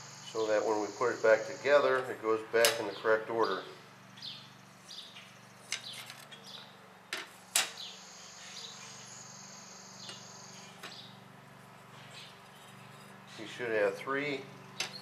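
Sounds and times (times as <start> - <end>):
high-pitched whine: 0.0 - 2.2.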